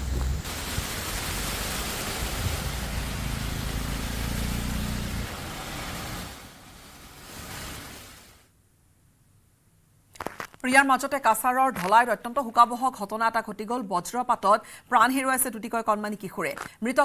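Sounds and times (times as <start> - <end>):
vehicle engine rumbling through water: 0.0 - 8.4
rushing floodwater and rain: 0.0 - 8.5.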